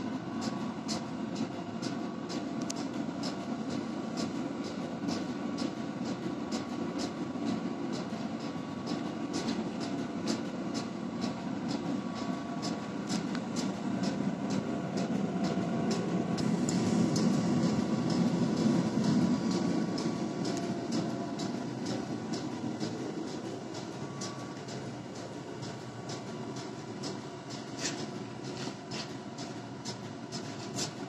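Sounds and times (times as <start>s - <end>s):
gas forge roaring: 8.6s - 31.0s.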